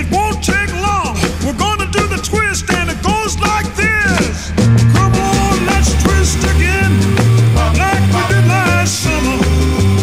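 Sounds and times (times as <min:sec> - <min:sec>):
background music: 0:00.0 - 0:10.0
stepping bass line: 0:00.0 - 0:10.0.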